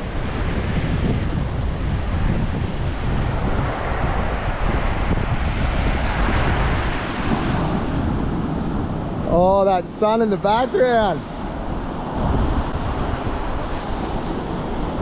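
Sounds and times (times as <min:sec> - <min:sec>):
surf washing on beach: 0:00.0 - 0:15.0
wind buffeting microphone: 0:00.0 - 0:15.0.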